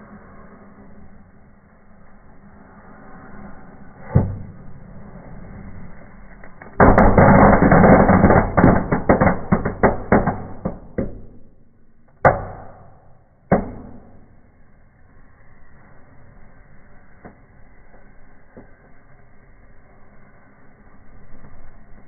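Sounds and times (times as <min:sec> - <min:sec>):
fireworks popping and banging: 0:06.6 - 0:11.6.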